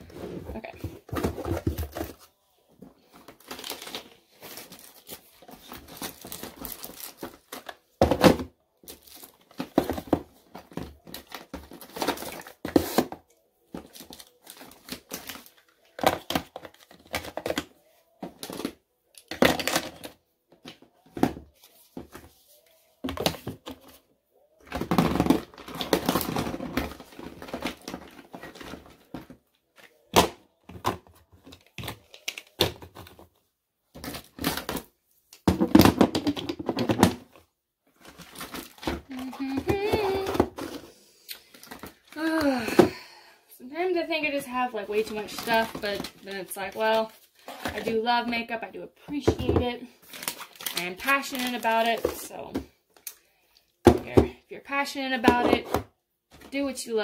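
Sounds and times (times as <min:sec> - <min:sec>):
boxes knocking in a drawer: 0:00.4 - 0:02.2
packaging rustling: 0:00.8 - 0:07.9, 0:37.9 - 0:42.4, 0:50.0 - 0:52.3.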